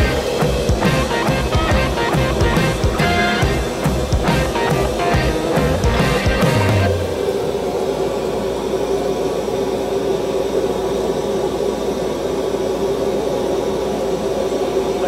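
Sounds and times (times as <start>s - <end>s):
constant hum: 0.0s - 15.0s
furnace roaring: 0.0s - 15.0s.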